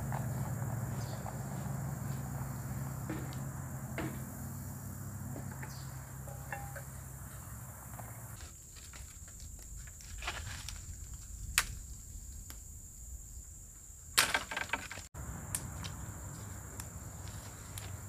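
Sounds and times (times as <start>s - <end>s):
dry branches cracking and snapping: 8.7s - 12.6s.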